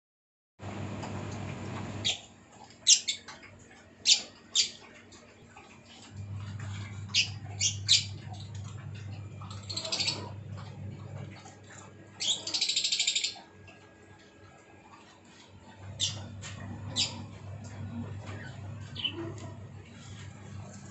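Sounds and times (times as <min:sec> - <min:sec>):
low steady hum: 0:00.6 - 0:20.9
parrots chirping: 0:02.8 - 0:03.4, 0:04.0 - 0:04.8, 0:07.1 - 0:10.4, 0:12.1 - 0:13.5, 0:15.9 - 0:20.1.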